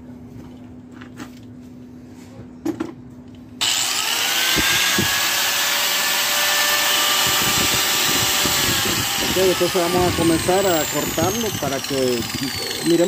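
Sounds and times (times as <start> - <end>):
angle grinder motor whining: 3.6 - 13.0.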